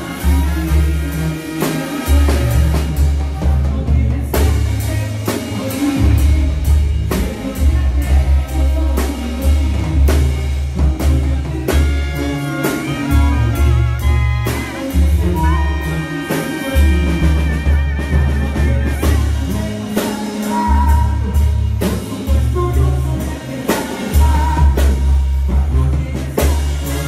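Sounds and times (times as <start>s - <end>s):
bass and drums: 0.0s - 27.0s
clarinets playing melody: 11.7s - 19.5s.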